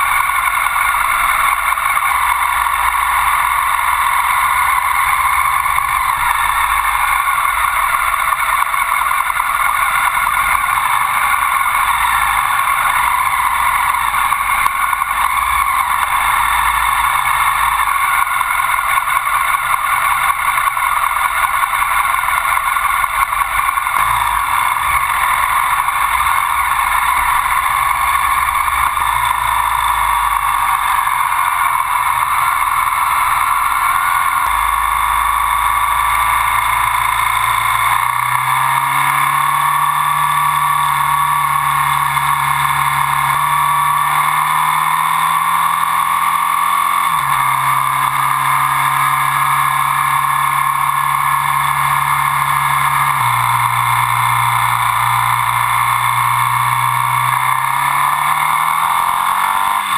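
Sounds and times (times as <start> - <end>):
motorcycle engine: 0.0 - 59.9
road noise: 0.0 - 59.9.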